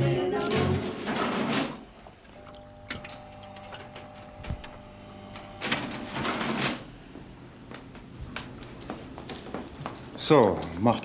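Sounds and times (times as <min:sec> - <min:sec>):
receipt printer buzzing: 0:02.4 - 0:06.9.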